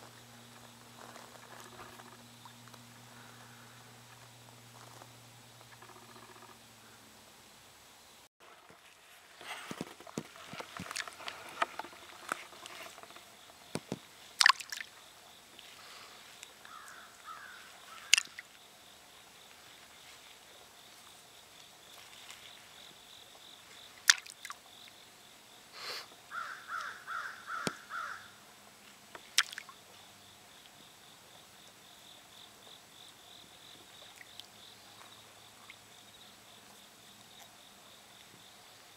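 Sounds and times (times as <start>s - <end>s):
faint insect whine: 0.0s - 38.9s
stones plopping into water: 13.8s - 14.9s, 18.1s - 18.4s, 24.1s - 24.6s, 29.4s - 29.7s
short calls: 25.8s - 28.4s.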